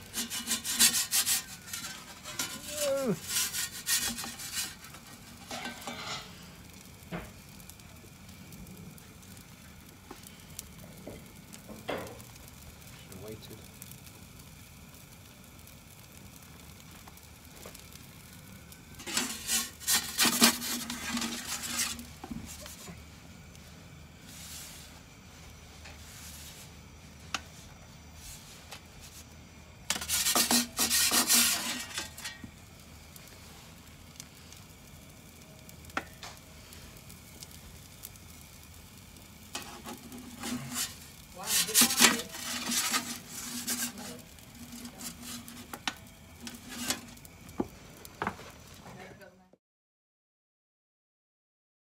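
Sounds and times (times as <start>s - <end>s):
metal peel scraping on stone: 0.0s - 6.4s, 19.0s - 23.0s, 29.9s - 32.5s, 39.4s - 47.2s
gas flame hissing: 0.0s - 49.4s.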